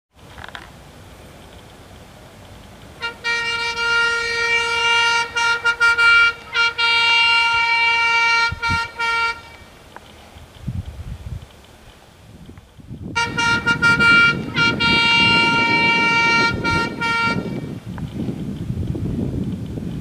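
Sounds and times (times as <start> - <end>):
bus horn honking: 3.0 - 9.8, 13.1 - 17.8.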